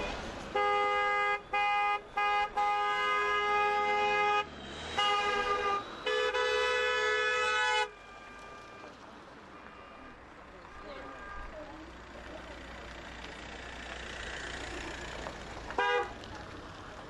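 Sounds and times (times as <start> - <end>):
car horns honking: 0.0 - 13.1, 15.7 - 16.3.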